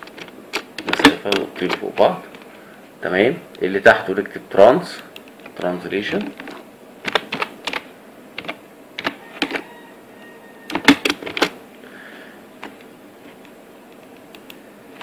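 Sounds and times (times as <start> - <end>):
computer keyboard typing: 6.2 - 7.8, 8.4 - 9.6, 10.7 - 11.5.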